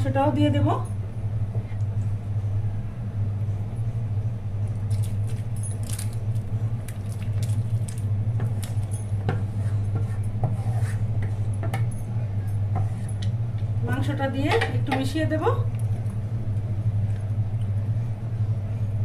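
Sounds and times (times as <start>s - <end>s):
low hum: 0.0s - 19.0s
water boiling in a pot: 4.9s - 9.1s
wooden spatula scraping a pot: 9.3s - 11.5s.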